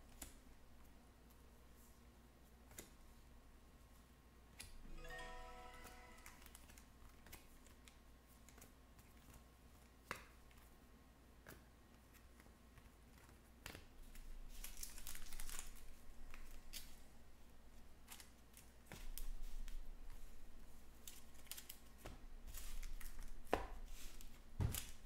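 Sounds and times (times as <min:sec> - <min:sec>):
wrappers crinkling: 0:14.5 - 0:15.9.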